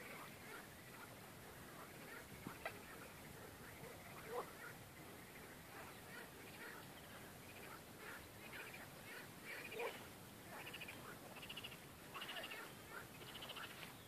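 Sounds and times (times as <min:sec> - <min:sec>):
frogs calling: 0:07.5 - 0:13.8.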